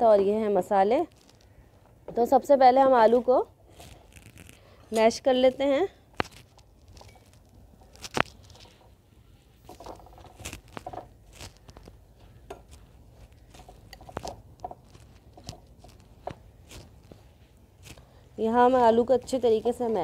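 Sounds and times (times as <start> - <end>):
potatoes squishing under masher: 9.7 - 20.0.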